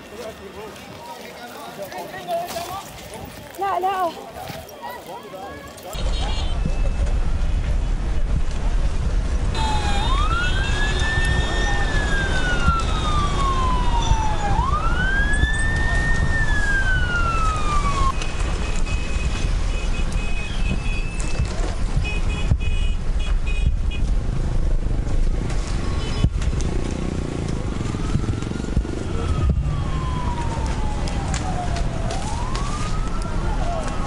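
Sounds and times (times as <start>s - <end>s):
low rumbling noise: 6.0s - 18.4s
emergency siren wailing: 9.5s - 18.5s, 27.8s - 34.0s.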